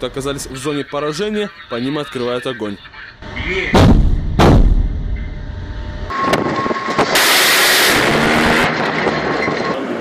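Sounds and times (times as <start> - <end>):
loud rushing roar: 6.1 - 9.4.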